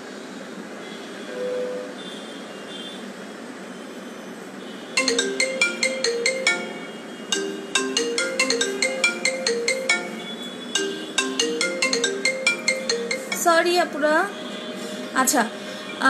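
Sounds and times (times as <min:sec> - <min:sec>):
marimba-like phone ringtone: 0:05.0 - 0:13.9.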